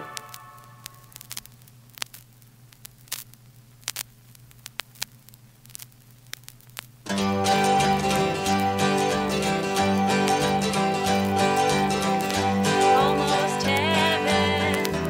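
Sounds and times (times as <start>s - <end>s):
song from record: 0.0s - 1.5s, 7.1s - 15.0s
vinyl clicks and pops: 0.0s - 15.0s
vinyl surface hiss: 0.0s - 15.0s.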